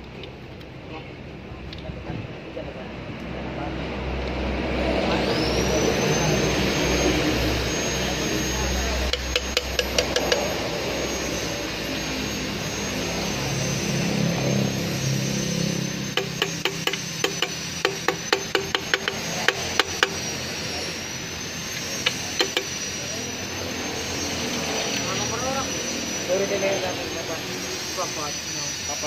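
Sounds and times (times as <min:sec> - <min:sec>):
steady mechanical drone: 0:00.0 - 0:29.0
hand tools tapping on metal: 0:09.1 - 0:10.5, 0:16.2 - 0:20.2, 0:22.0 - 0:22.7.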